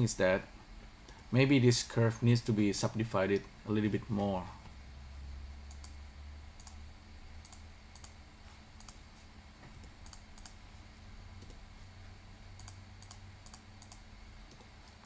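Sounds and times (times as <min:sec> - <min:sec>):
faint low hum: 0:00.0 - 0:15.0
mouse and keyboard clicks: 0:10.0 - 0:10.6.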